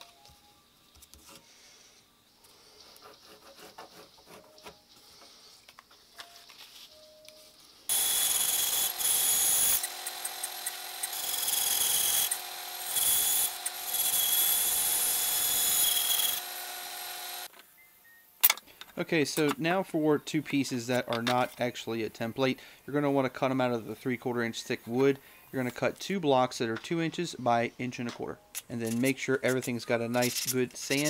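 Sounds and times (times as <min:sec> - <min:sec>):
bandsaw cutting wood: 0:07.9 - 0:17.5.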